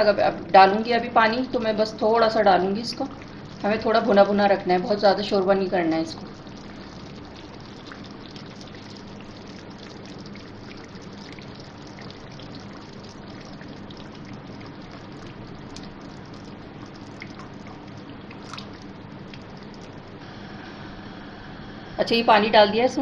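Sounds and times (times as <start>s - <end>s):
water pouring into a pan: 1.4s - 20.2s
sizzling with crackling pops: 2.6s - 20.7s.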